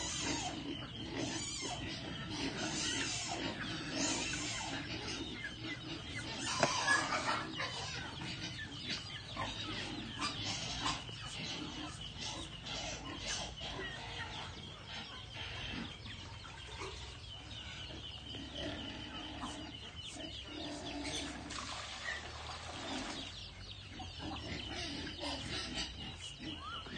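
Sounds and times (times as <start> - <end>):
birds pecking on ground: 0.0 - 26.9
soft clucking calls: 4.3 - 13.0.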